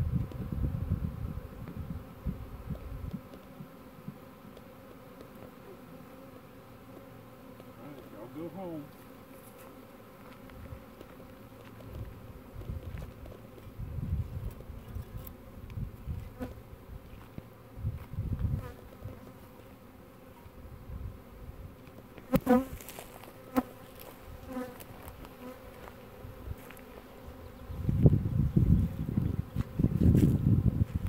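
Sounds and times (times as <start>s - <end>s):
bees buzzing: 0.0s - 31.0s
bee zipping close past: 17.8s - 31.0s.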